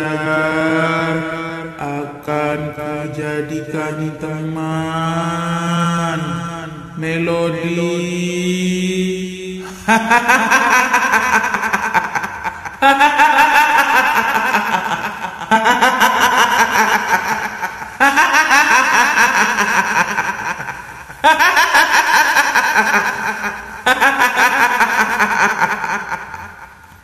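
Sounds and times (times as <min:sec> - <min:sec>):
woman cackling laugh: 0:09.6 - 0:26.8.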